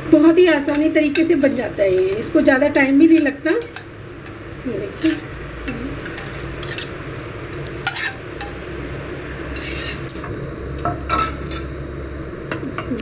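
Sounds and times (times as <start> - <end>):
spoon scraping and clinking dishes: 0.6 - 13.0.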